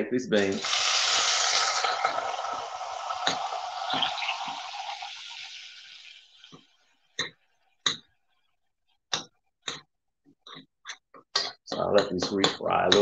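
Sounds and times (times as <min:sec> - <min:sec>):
beans sizzling in hot fat: 0:00.4 - 0:06.6.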